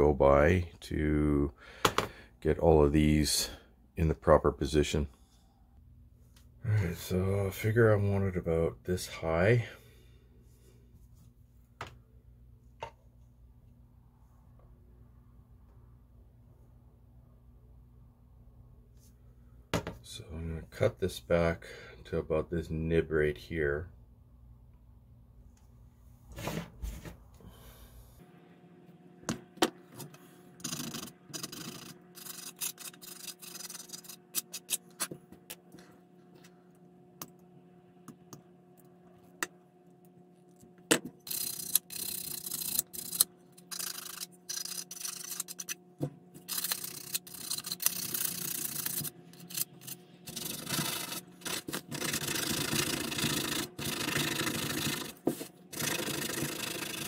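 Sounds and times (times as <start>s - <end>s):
faint steady hum: 0.0s - 57.0s
sandpaper rubbing on rod: 30.6s - 34.7s, 41.3s - 45.7s, 46.5s - 57.0s.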